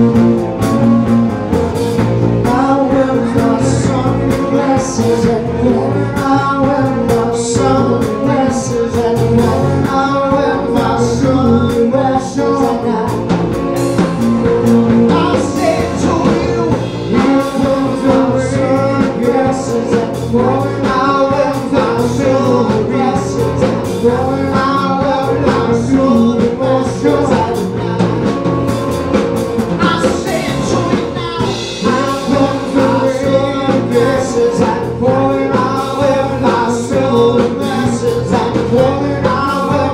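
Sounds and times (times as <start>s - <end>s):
drum kit: 0.0s - 39.9s
electric bass: 0.0s - 39.9s
keyboard: 0.0s - 39.9s
man singing: 2.2s - 13.6s, 14.6s - 28.8s, 29.7s - 39.9s.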